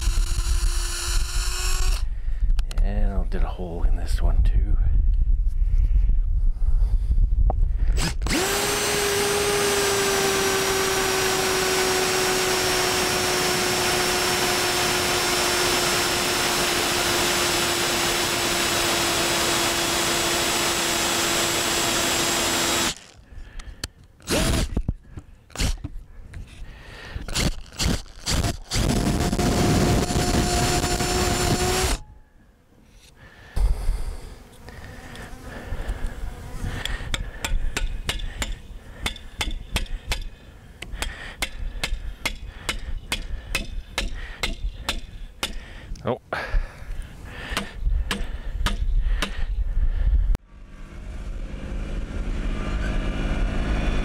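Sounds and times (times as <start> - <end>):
cordless drill boring into wood: 0.0 - 2.1, 7.9 - 23.2, 24.2 - 24.8, 25.5 - 25.9, 27.2 - 32.0.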